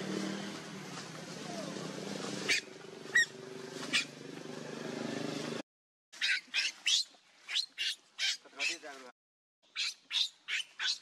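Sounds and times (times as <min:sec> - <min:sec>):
engine hum: 0:00.0 - 0:05.6
baby monkey squealing: 0:02.5 - 0:03.3, 0:06.2 - 0:08.8, 0:09.7 - 0:11.0.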